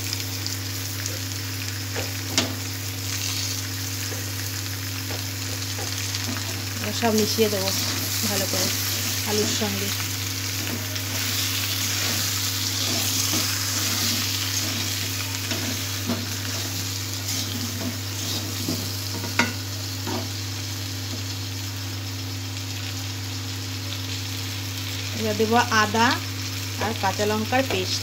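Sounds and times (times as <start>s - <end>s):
potatoes sizzling in oil: 0.0s - 28.0s
spatula scraping and knocking pan: 10.6s - 20.3s.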